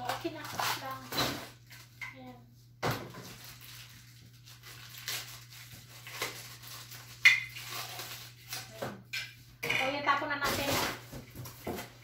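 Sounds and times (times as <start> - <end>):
packaging rustling: 3.1 - 8.8.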